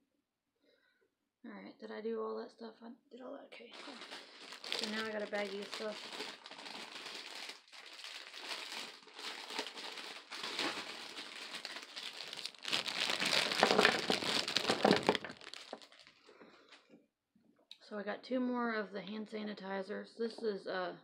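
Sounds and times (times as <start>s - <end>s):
plastic bag crinkling: 3.7s - 16.3s.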